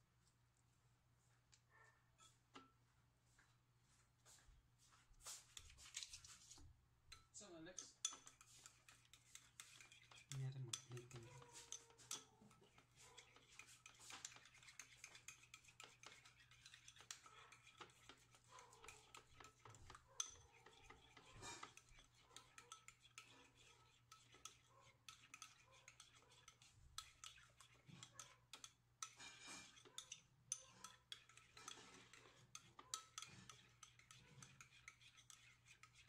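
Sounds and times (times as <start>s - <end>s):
metal spoon scraping ceramic bowl: 5.2s - 36.0s.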